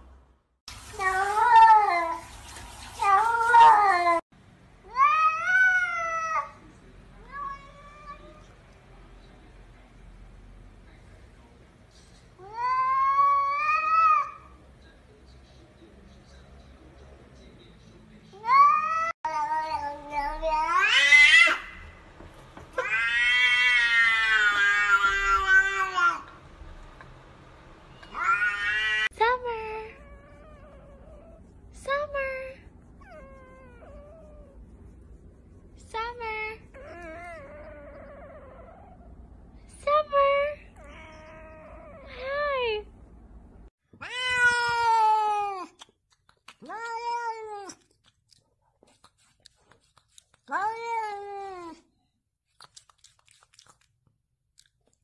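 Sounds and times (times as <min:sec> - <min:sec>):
cats meowing: 0:22.8 - 0:26.3, 0:28.0 - 0:29.1, 0:44.0 - 0:45.8.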